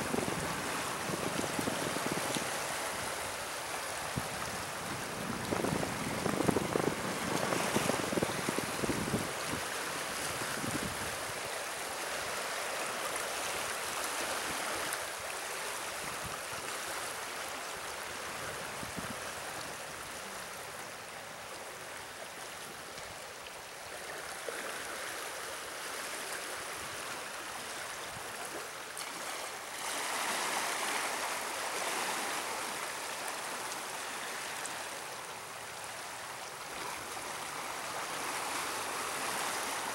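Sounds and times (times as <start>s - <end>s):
wind rumble on microphone: 0.0s - 11.5s, 18.3s - 20.0s
water rushing and churning: 0.0s - 39.9s.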